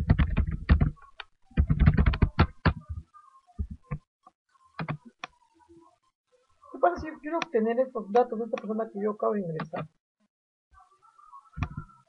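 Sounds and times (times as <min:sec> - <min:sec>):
typing on a computer keyboard: 0:00.0 - 0:03.0.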